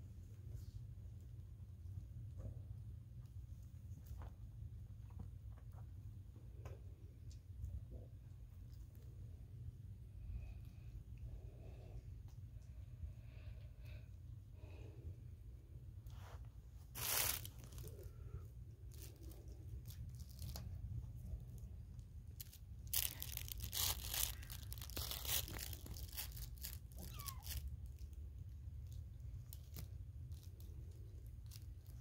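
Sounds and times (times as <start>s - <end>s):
kittens clawing at a woven basket: 22.3s - 32.0s.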